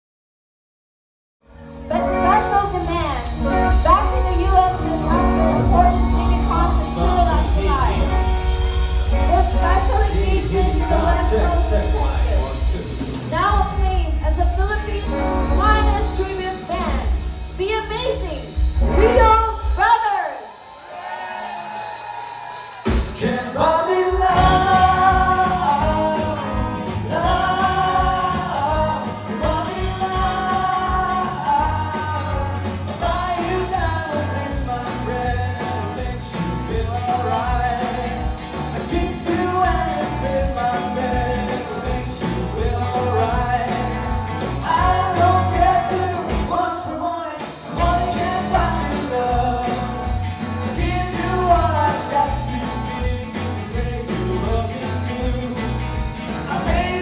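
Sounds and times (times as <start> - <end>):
live rock band playing: 1.4 - 57.0
voices singing in harmony: 3.5 - 13.2, 23.1 - 57.0.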